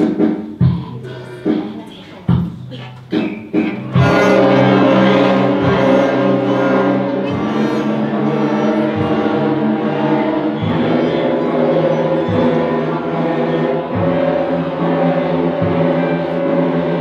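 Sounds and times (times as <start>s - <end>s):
string orchestra bowed notes: 3.8s - 17.0s.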